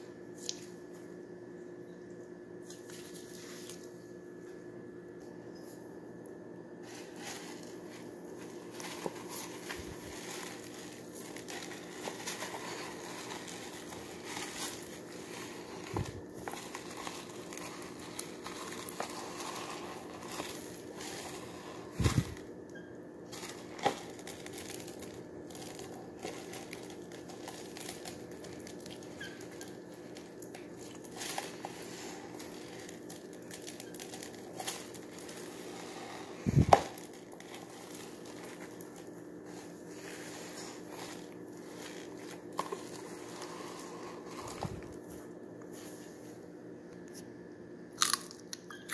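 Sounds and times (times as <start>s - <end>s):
foam beads crackling and crunching: 6.8s - 22.5s, 23.3s - 45.2s.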